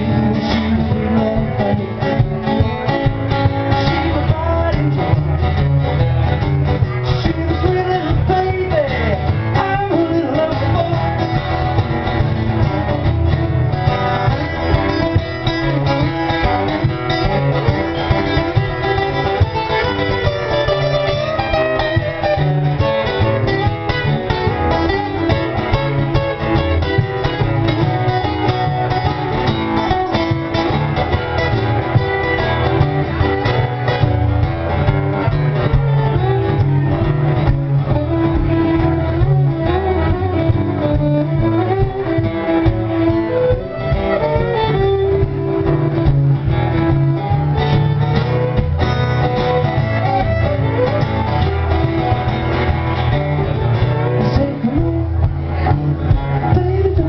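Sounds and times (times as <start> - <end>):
acoustic guitars strumming: 0.0 - 57.0
fiddle playing: 0.0 - 57.0.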